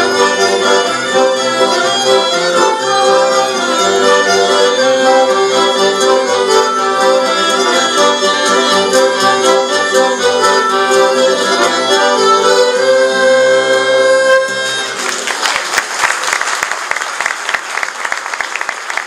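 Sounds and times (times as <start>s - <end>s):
accordion playing polka: 0.0s - 15.2s
audience applause: 14.8s - 19.0s.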